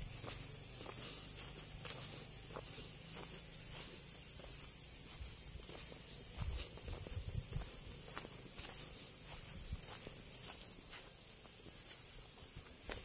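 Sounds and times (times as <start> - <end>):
footsteps on garden path: 0.0 - 13.0
insects chorus: 0.0 - 13.0.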